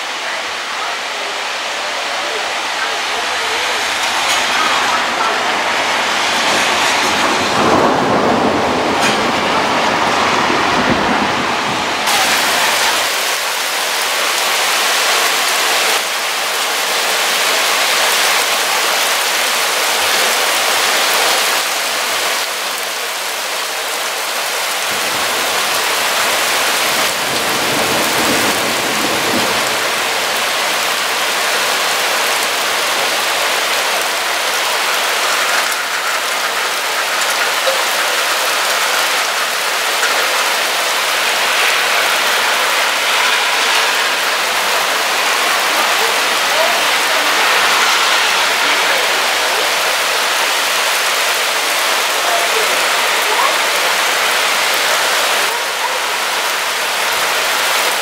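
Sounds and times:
heavy rain on trees: 0:00.0 - 0:58.0
low rumble of thunder: 0:06.0 - 0:12.0.

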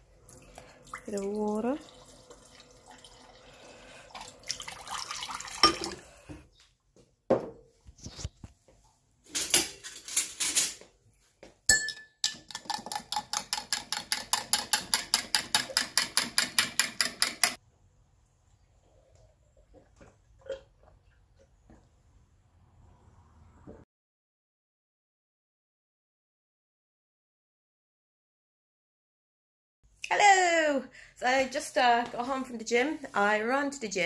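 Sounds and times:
glassware and dishes clattering: 0:05.6 - 0:06.0, 0:11.7 - 0:17.6
spoon clinking in a glass: 0:11.7 - 0:15.4.

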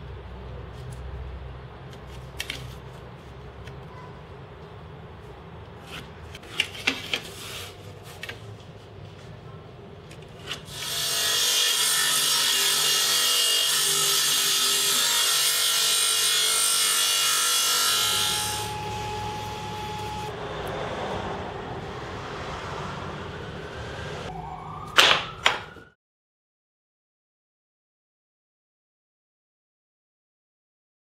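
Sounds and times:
table saw cutting plywood: 0:10.4 - 0:22.5.

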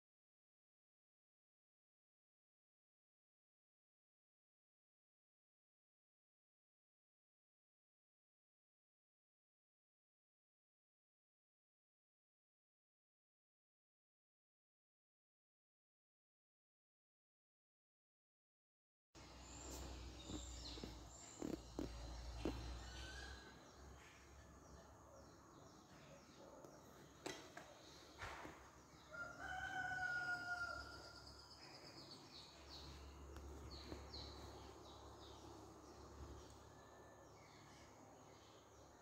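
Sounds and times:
small birds chirping: 0:19.2 - 0:39.0
rooster crowing: 0:29.0 - 0:31.3.

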